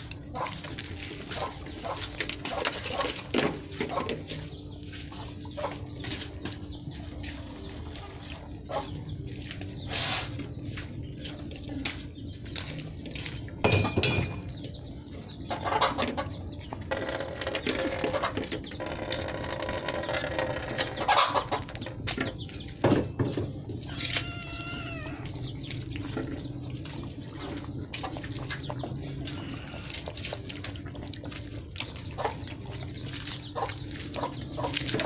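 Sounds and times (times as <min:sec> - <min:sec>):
puppies eating from metal basin: 0:00.0 - 0:09.8, 0:10.8 - 0:35.0
drawn-out animal calls: 0:15.1 - 0:22.4, 0:23.7 - 0:35.0.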